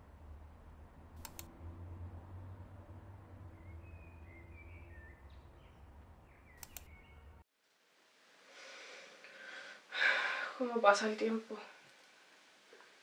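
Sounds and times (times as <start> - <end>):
quick clicks: 1.2 - 1.5, 6.6 - 7.0
faint high chirps: 3.5 - 7.4
soft hiss: 7.5 - 13.0.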